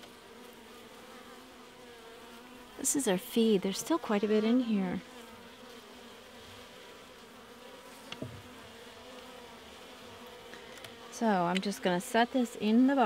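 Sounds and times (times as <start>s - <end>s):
bees buzzing: 0.0s - 13.0s
light knock: 8.1s - 8.4s.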